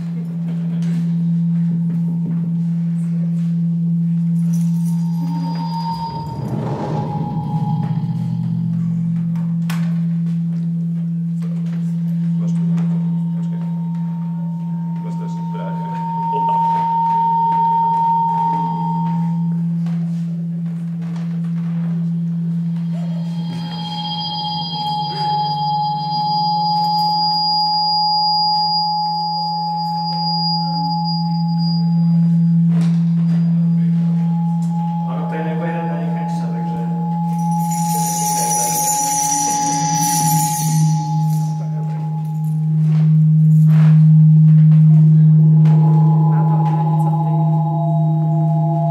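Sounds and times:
loud low feedback hum: 0.0s - 48.9s
faint high tone: 4.6s - 9.9s, 22.8s - 32.2s, 32.8s - 42.6s.

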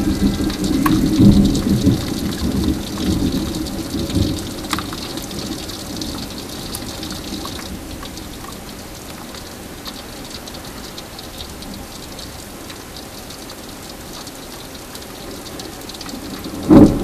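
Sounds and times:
low rumble of thunder: 0.0s - 7.9s, 16.1s - 17.0s
heavy rain: 0.0s - 17.0s.

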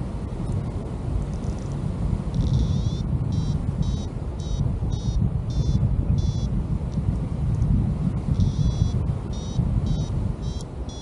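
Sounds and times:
wind rush on microphone: 0.0s - 11.0s
variometer beeping: 2.4s - 6.6s, 8.4s - 11.0s.

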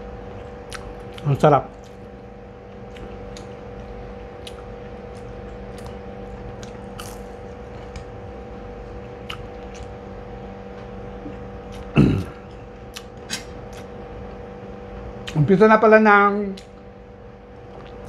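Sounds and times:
electrical hum: 0.0s - 18.0s
person chewing food: 0.3s - 10.0s, 10.8s - 14.4s, 17.6s - 18.0s
wet mouth clicks: 0.7s - 2.0s, 12.9s - 13.9s.

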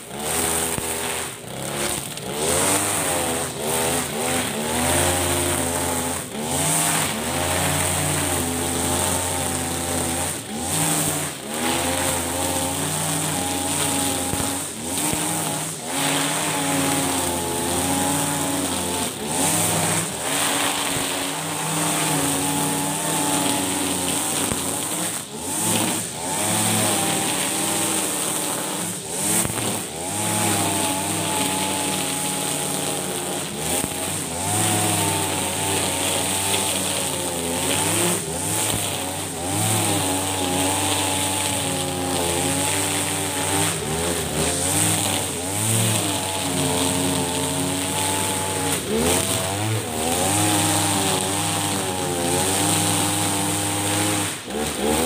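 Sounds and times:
brush cutter engine running: 0.0s - 55.0s.

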